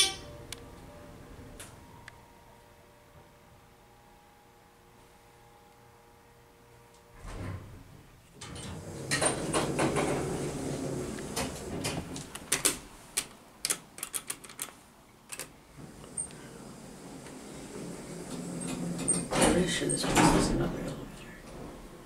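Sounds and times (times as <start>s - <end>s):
elevator hum: 0.0s - 13.6s, 15.4s - 22.0s
elevator doors sliding: 7.1s - 12.8s, 15.8s - 22.0s
elevator car thump: 8.5s - 12.3s, 15.8s - 22.0s.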